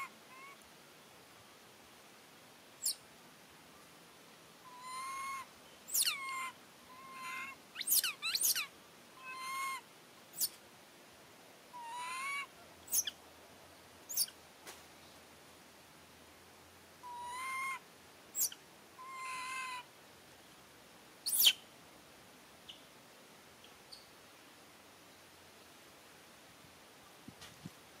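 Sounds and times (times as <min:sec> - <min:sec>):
baby monkey crying: 0:04.7 - 0:09.8, 0:11.7 - 0:13.1, 0:17.0 - 0:17.8, 0:18.4 - 0:19.8.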